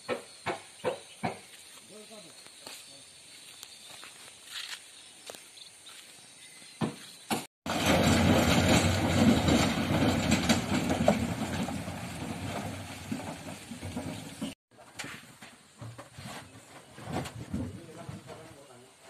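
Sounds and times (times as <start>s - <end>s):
diesel engine running and rattling: 7.7s - 14.6s.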